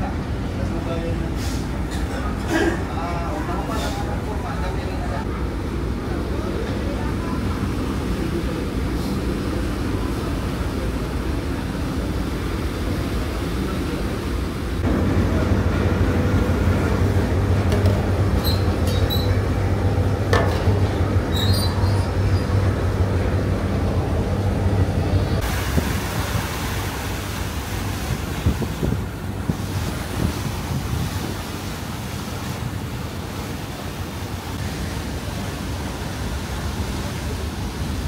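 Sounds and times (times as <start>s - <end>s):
ferry engines droning: 0.0s - 30.2s.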